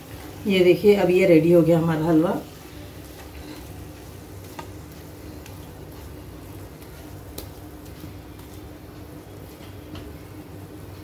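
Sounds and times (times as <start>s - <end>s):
steady low hum: 0.0s - 11.0s
spatula scraping food in pan: 2.6s - 8.7s.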